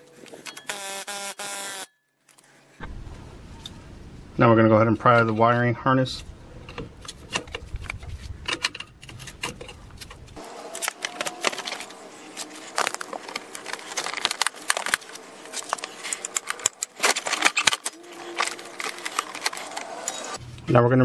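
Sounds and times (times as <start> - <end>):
plastic clips clicking and snapping: 10.7 - 20.3.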